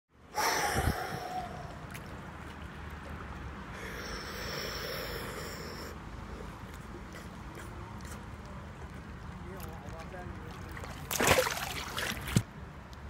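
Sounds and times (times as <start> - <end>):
person breathing: 0.3 - 1.8, 3.7 - 6.6
water sloshing and lapping: 0.7 - 4.2, 5.4 - 12.5.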